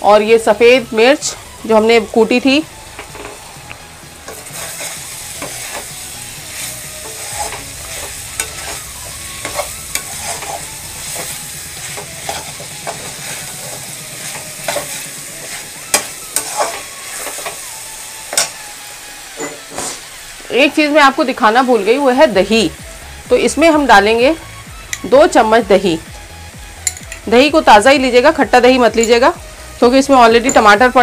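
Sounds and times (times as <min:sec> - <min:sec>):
meat frying with sizzle: 0:00.0 - 0:31.0
metal spoon scraping a pan: 0:04.2 - 0:17.6.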